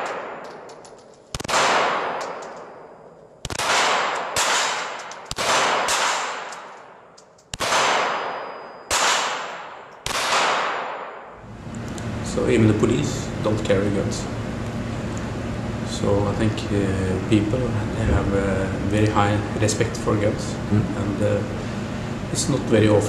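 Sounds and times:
pistol shots echoing: 0.0s - 11.4s.

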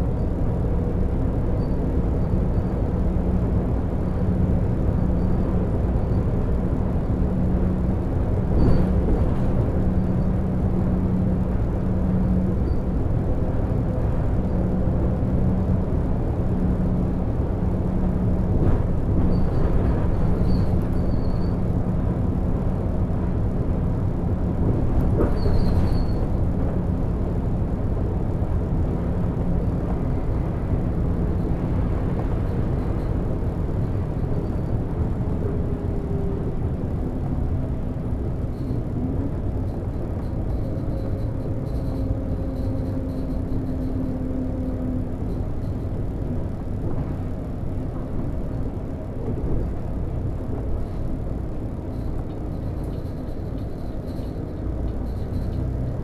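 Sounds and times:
bus engine drone: 0.0s - 56.0s
road and tyre rumble: 0.0s - 56.0s
faint high squeaks: 19.2s - 21.6s, 25.3s - 26.4s, 40.2s - 44.7s.

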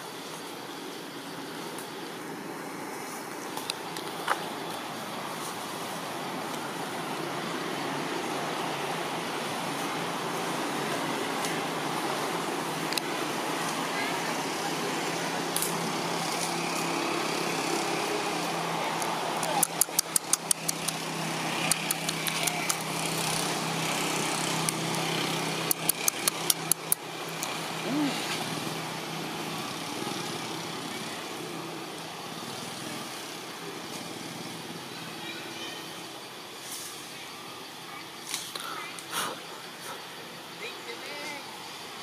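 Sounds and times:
vehicle engine running: 1.3s - 35.1s
sharp clicks: 19.4s - 23.0s, 25.6s - 27.5s.

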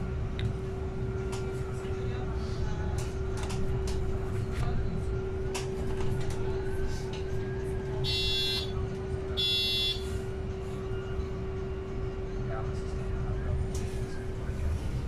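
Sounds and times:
bus engine and road rumble: 0.0s - 15.0s
bus signal buzzer beeps: 8.0s - 8.7s, 9.4s - 10.0s.

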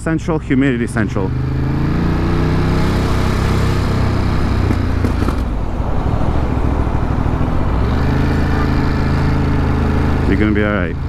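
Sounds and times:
road and wind noise: 0.0s - 11.0s
motorcycle engine running: 0.5s - 11.0s.

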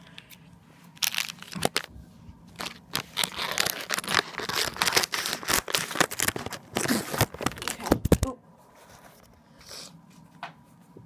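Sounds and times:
plastic packet crinkling: 1.0s - 1.9s, 2.6s - 8.3s
scissors cutting plastic: 1.0s - 1.9s, 2.6s - 7.9s.

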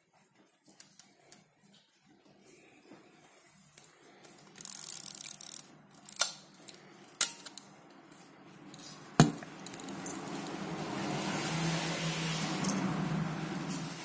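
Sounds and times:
camera film advance ratcheting: 4.5s - 6.4s.

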